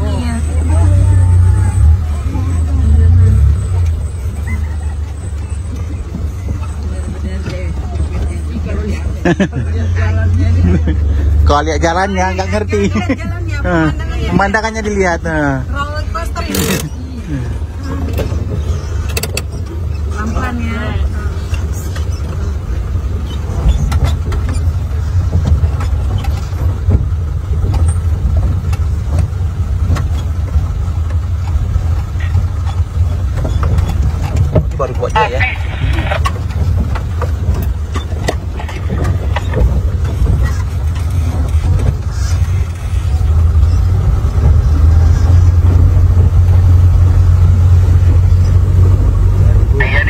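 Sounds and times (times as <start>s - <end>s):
engine and road rumble: 0.0s - 50.0s
knocks and rattles from bumps: 11.5s - 50.0s.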